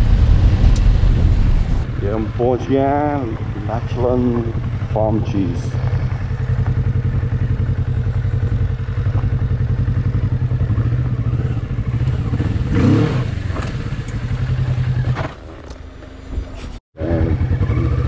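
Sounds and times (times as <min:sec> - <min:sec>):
motorcycle engine running: 0:00.0 - 0:16.4, 0:17.0 - 0:18.0.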